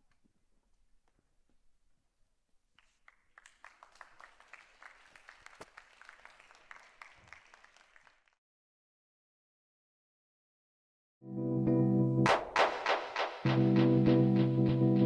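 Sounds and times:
faint audience applause: 2.8 - 8.4.

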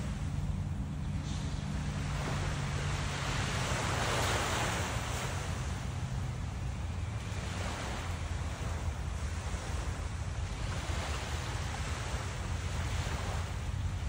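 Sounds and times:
steady low rumble: 0.0 - 14.0
small surf breaking on sand: 1.0 - 6.1.

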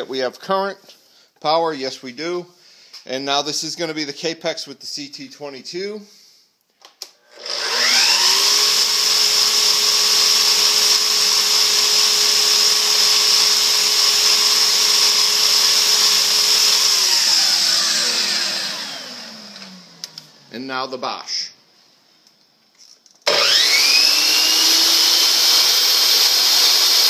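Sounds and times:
miter saw motor whining: 7.3 - 20.4, 23.3 - 27.0
dust extractor running: 7.3 - 20.5, 23.3 - 27.0.

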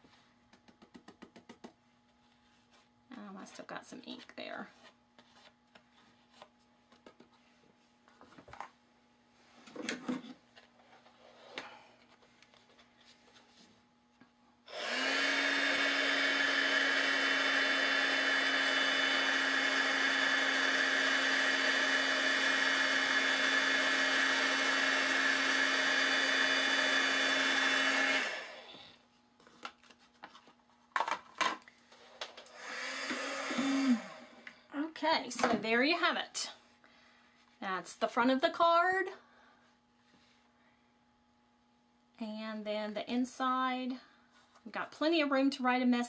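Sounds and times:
heat gun blowing: 14.7 - 28.8, 32.4 - 34.6.

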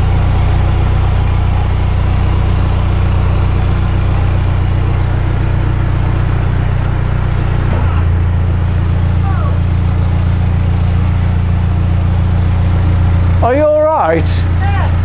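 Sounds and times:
diesel boat engine running: 0.0 - 15.0.

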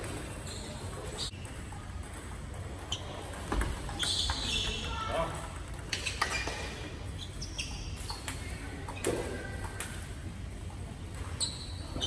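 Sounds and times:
table tennis balls bouncing: 0.0 - 10.4.

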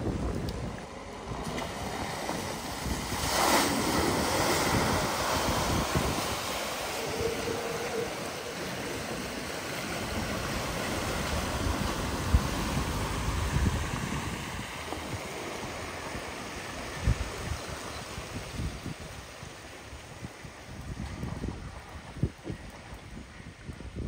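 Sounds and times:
floodwater rushing and splashing: 0.0 - 24.0
wind buffeting microphone: 0.0 - 24.0.

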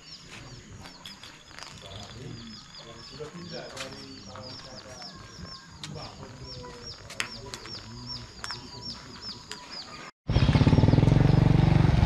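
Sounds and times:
loud engine running: 10.3 - 12.0.

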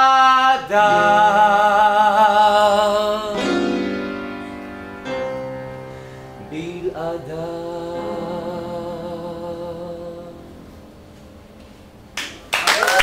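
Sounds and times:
man singing with vibrato: 0.0 - 4.3, 6.3 - 10.9
piano chords: 0.0 - 12.6.

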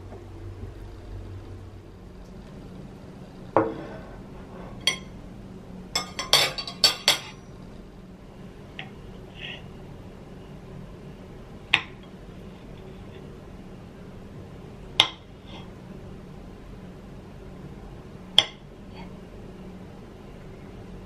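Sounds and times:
cutlery clinking on a ceramic plate: 6.0 - 7.4.

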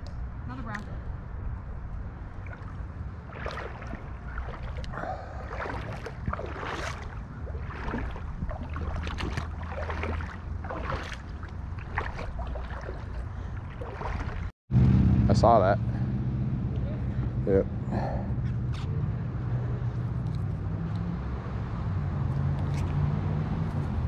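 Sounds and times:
river water running: 0.7 - 14.5
water splashing: 2.0 - 14.5.

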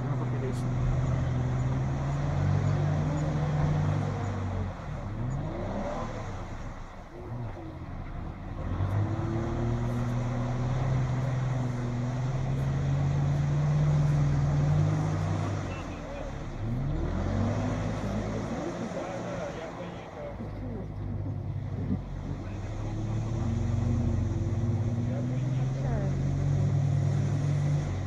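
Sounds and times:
suv engine pulling under load: 0.0 - 28.0
water splashing around wheels: 0.0 - 28.0.

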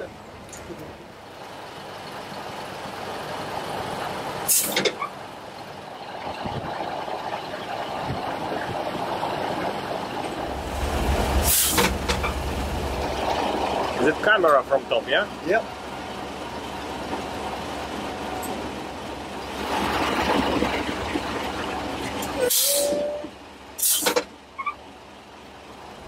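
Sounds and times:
travel lift engine running: 0.0 - 22.4
short sharp hisses: 4.5 - 4.8, 11.4 - 12.0, 22.5 - 22.9, 23.8 - 24.2.

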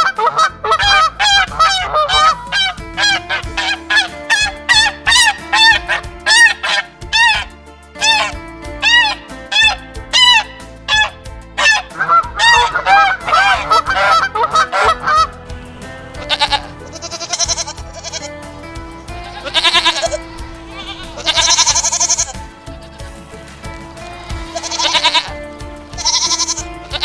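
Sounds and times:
waterfowl honking: 0.0 - 15.4, 19.2 - 23.2, 24.0 - 25.3
background music: 0.0 - 27.0
goats bleating: 16.1 - 18.4, 19.1 - 23.4, 24.0 - 27.0.

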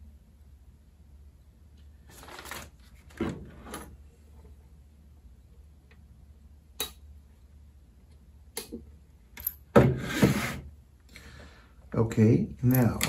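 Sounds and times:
box scraping on wooden desk: 9.9 - 10.7.

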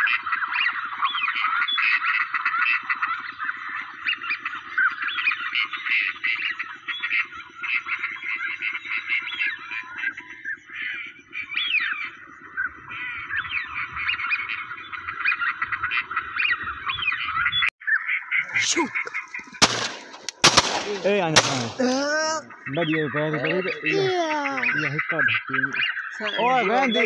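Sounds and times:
ducks quacking: 0.0 - 27.0
geese honking: 0.0 - 27.0.

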